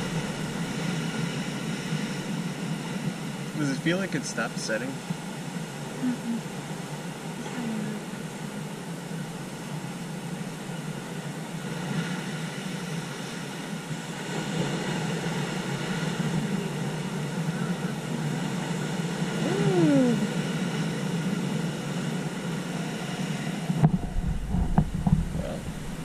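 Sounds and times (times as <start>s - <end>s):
surf breaking on rocks: 0.0s - 5.0s.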